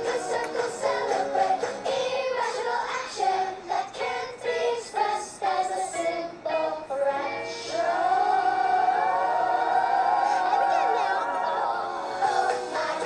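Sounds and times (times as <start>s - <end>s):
person singing: 6.5s - 13.0s.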